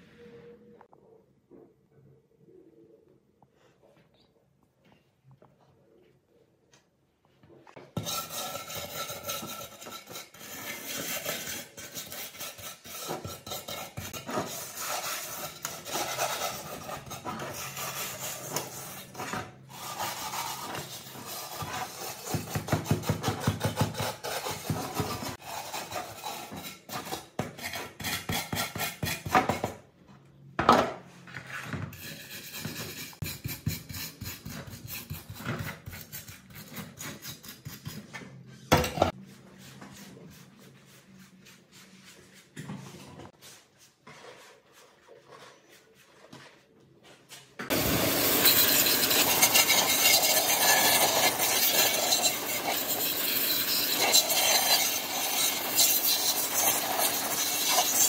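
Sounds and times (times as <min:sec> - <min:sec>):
wire brush scraping metal: 0:47.7 - 0:58.0.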